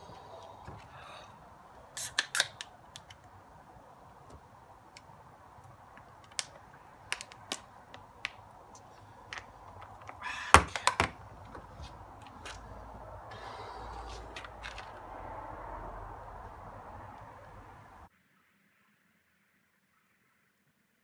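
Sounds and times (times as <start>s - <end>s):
can being crushed: 2.0s - 3.2s, 6.2s - 8.4s
beer cans clicking and knocking: 9.3s - 11.3s.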